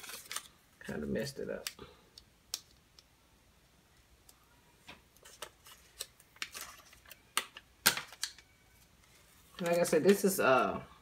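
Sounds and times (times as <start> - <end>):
vinyl sheet crackling and rustling: 0.0 - 1.7, 8.1 - 10.8.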